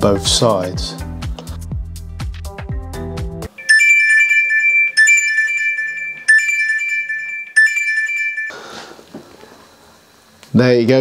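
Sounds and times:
chiming alert tone: 0:03.6 - 0:08.6.

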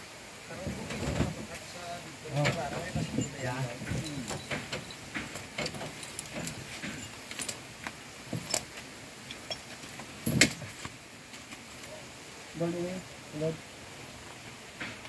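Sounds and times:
steel chain clinking and rattling: 0:02.3 - 0:10.9
loud chain clank: 0:02.4 - 0:10.8.

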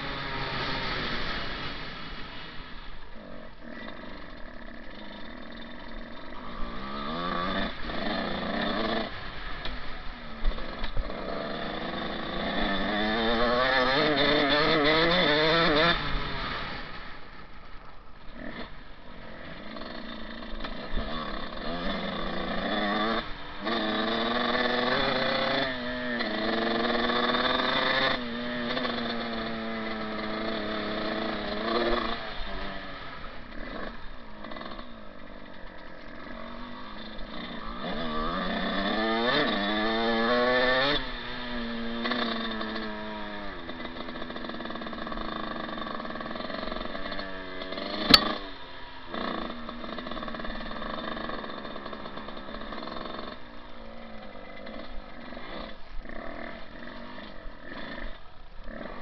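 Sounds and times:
dirt bike engine revving: 0:00.0 - 0:17.4, 0:18.2 - 0:59.0
sharp click: 0:48.0 - 0:48.4.

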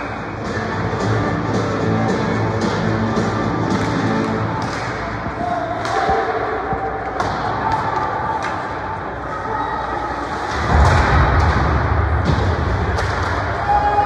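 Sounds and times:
hockey sticks and puck clacking: 0:02.6 - 0:09.0, 0:10.2 - 0:14.0
low rumble: 0:10.6 - 0:13.8.

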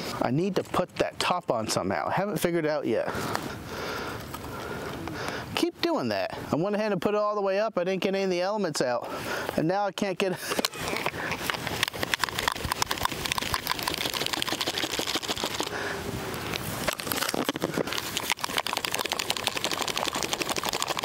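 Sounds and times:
antenna pole clicking and rattling: 0:10.6 - 0:15.7.

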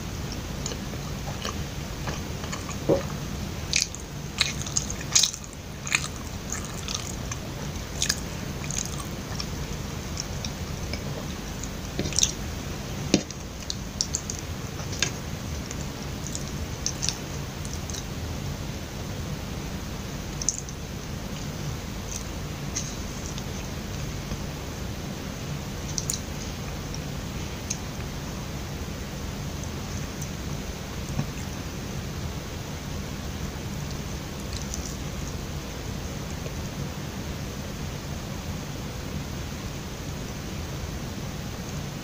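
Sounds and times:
steady low hum: 0:00.0 - 0:42.0
wet chewing mouth clicks: 0:00.3 - 0:12.4, 0:25.9 - 0:26.3.

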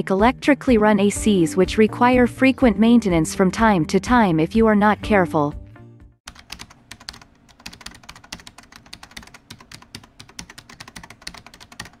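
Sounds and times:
keyboard typing clicks: 0:06.3 - 0:12.0.

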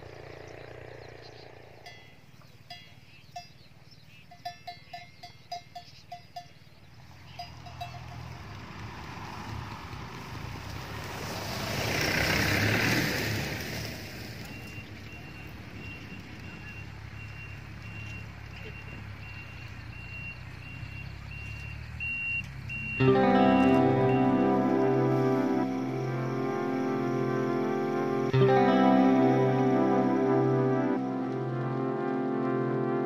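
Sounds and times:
livestock bell clanking: 0:01.8 - 0:08.7
short electronic beeps: 0:14.4 - 0:25.2.

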